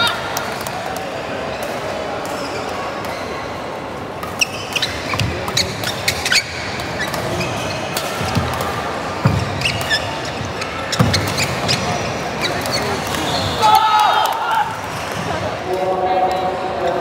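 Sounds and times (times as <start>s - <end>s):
indoor hall background din: 0.0s - 17.0s
racket hitting shuttlecock: 4.2s - 13.3s
shoes squeaking on court: 4.2s - 13.6s.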